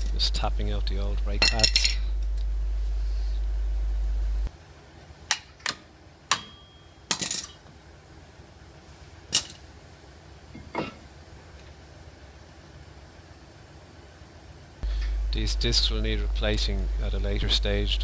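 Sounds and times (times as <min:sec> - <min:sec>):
low hum: 0:00.0 - 0:04.5, 0:14.8 - 0:18.0.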